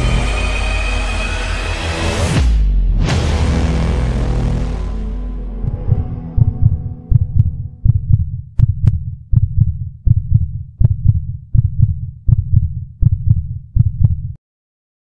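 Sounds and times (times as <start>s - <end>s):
heartbeat: 5.6s - 14.4s.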